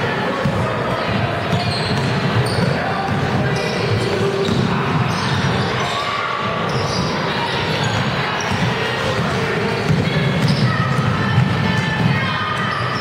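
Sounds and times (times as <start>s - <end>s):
echoing voices: 0.0s - 13.0s
sneakers squeaking: 0.4s - 13.0s
basketball bouncing: 1.5s - 5.1s, 8.5s - 12.2s.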